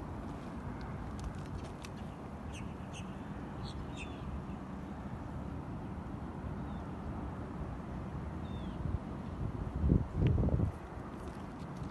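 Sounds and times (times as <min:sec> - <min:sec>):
bird chirps: 0:02.0 - 0:04.3
wind rumbling on microphone: 0:08.4 - 0:11.9.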